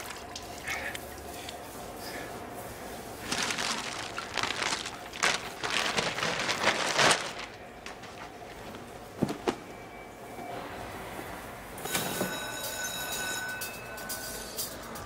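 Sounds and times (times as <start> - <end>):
rustling and rubbing: 3.2 - 9.5.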